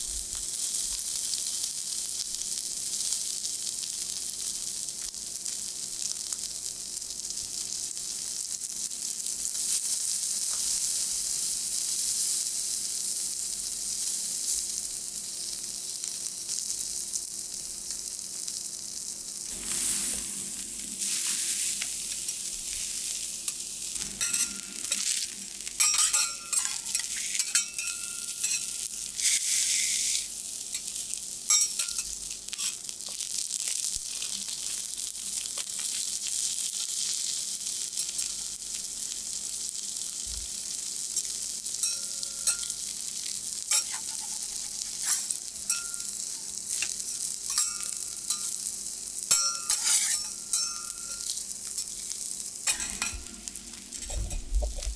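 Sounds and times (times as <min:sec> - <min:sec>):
fish sizzling in oil: 0:00.0 - 0:54.9
metal spatulas scraping griddle: 0:24.0 - 0:28.6, 0:43.7 - 0:46.0, 0:49.3 - 0:51.1, 0:52.7 - 0:53.3.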